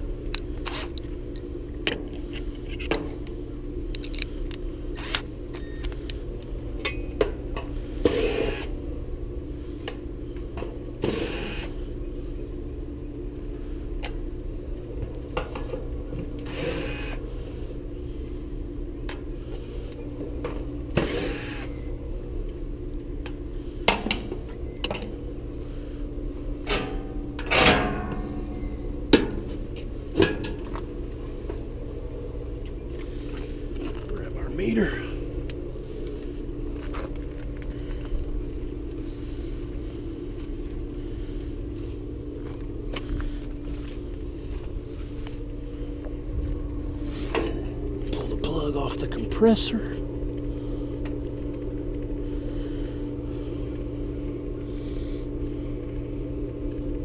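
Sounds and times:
steady low hum: 0:00.0 - 0:57.0
cordless drill running: 0:16.5 - 0:17.2, 0:21.0 - 0:21.7.

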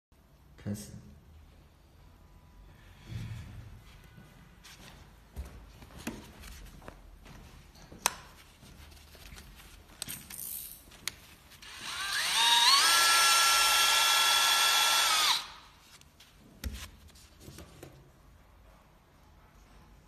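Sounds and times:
power drill motor whine: 0:11.6 - 0:15.6.

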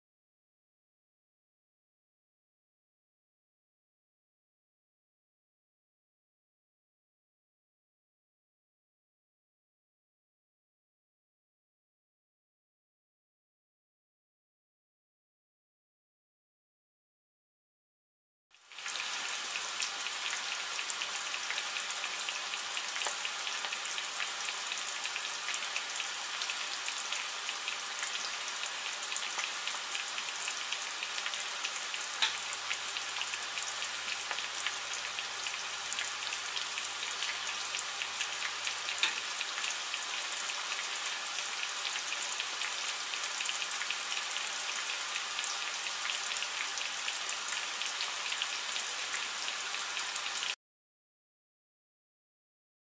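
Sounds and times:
food sizzling in oil: 0:18.5 - 0:50.6.

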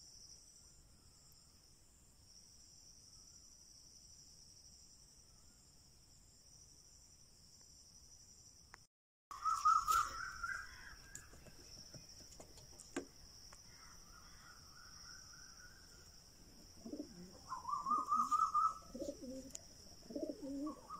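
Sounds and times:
bird trilling: 0:09.3 - 0:11.4, 0:16.9 - 0:19.5
pigeons cooing: 0:16.5 - 0:20.9.

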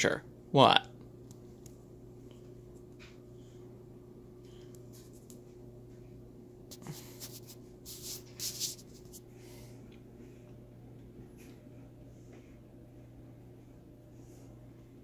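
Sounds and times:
steady low hum: 0:00.0 - 0:15.0
short scratchy rustles: 0:06.7 - 0:09.2.

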